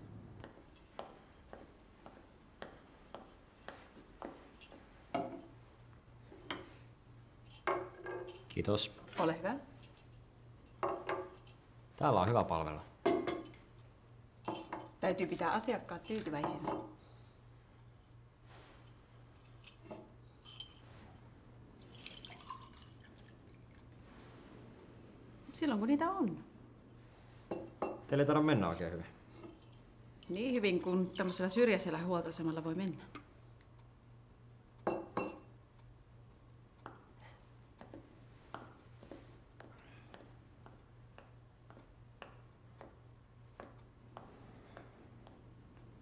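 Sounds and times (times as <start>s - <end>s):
steady low hum: 0.0s - 46.0s
footsteps on a hard floor: 0.4s - 4.9s
faint clicks and clinks: 3.1s - 6.8s, 7.4s - 8.6s, 9.7s - 12.0s, 15.9s - 21.2s
crockery clinking on a tray: 16.0s - 17.0s, 34.9s - 35.5s.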